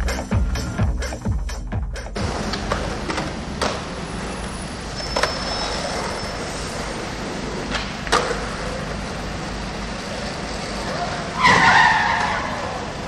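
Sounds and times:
traffic noise: 0:02.1 - 0:13.0
skateboard rolling on asphalt: 0:02.2 - 0:12.7.

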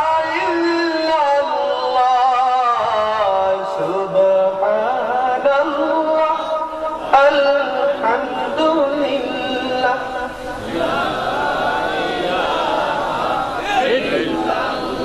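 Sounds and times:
man chanting: 0:00.0 - 0:15.0.

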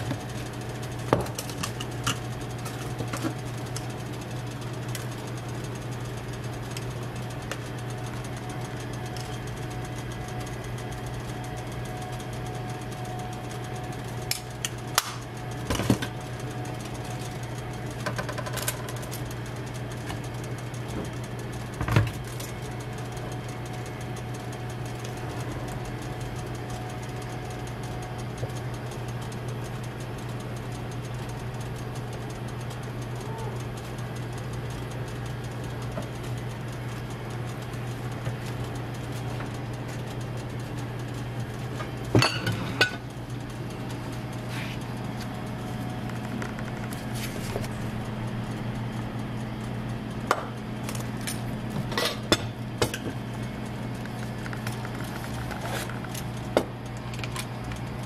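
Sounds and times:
low machine hum: 0:00.0 - 0:58.0
utensils clattering on metal tray: 0:42.2 - 0:43.0.

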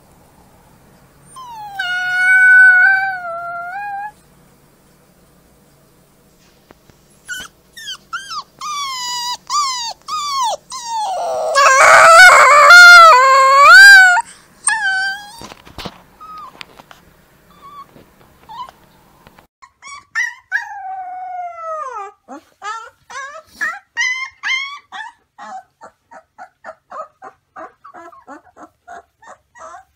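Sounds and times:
puppy yipping: 0:01.3 - 0:04.1, 0:07.2 - 0:15.5, 0:19.6 - 0:29.9
puppy howling: 0:01.3 - 0:04.2, 0:07.3 - 0:15.5, 0:19.8 - 0:29.9
puppy whimpering: 0:01.3 - 0:04.2, 0:07.2 - 0:15.6, 0:16.2 - 0:16.6, 0:17.5 - 0:17.9, 0:18.5 - 0:18.8, 0:19.6 - 0:29.9.

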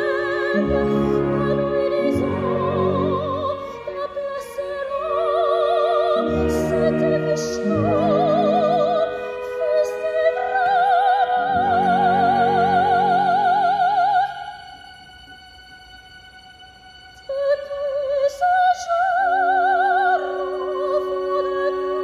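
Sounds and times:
orchestra sustained chords: 0:00.0 - 0:14.7
soprano singing operatic line: 0:00.0 - 0:15.8, 0:17.1 - 0:22.0.

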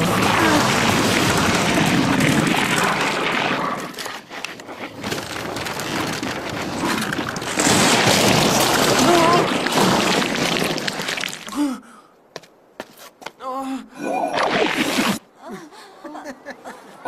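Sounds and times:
cartoon rushing noise: 0:14.3 - 0:15.2.

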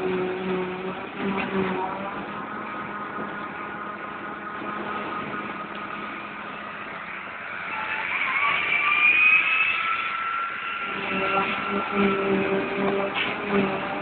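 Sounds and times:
rising whine: 0:00.0 - 0:14.0
tractor engines running: 0:00.0 - 0:14.0.

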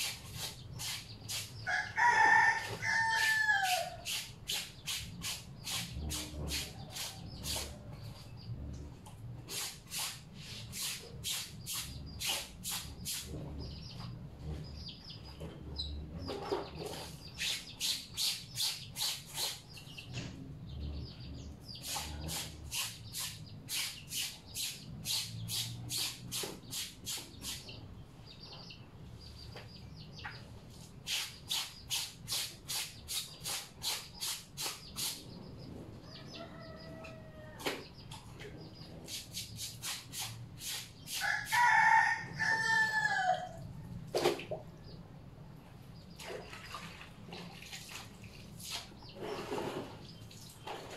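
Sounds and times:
clothes scrubbed by hand: 0:00.0 - 0:01.6, 0:04.0 - 0:07.8, 0:09.5 - 0:13.3, 0:31.1 - 0:35.2, 0:39.1 - 0:41.2
rooster crowing: 0:01.7 - 0:04.0, 0:36.0 - 0:37.6, 0:41.2 - 0:43.6.

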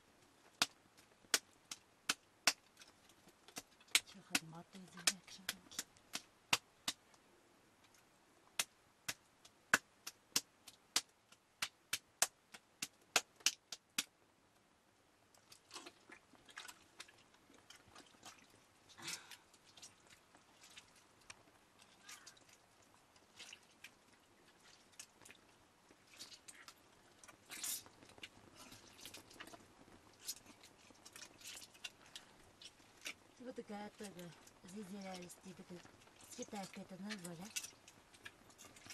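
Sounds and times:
wet squelching of butter: 0:15.4 - 0:38.9.

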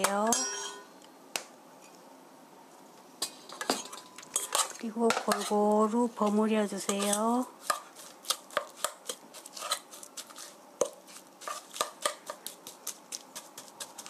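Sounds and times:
metal spoon scraping steel bowl: 0:03.8 - 0:05.6, 0:06.8 - 0:10.5.

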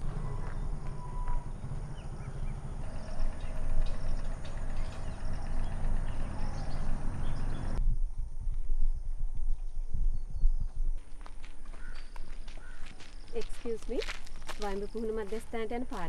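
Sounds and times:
footsteps on dirt path: 0:00.0 - 0:02.0, 0:08.1 - 0:16.0
birds chirping: 0:00.0 - 0:07.8, 0:11.6 - 0:14.0, 0:14.6 - 0:16.0
low rumble: 0:00.0 - 0:11.0.

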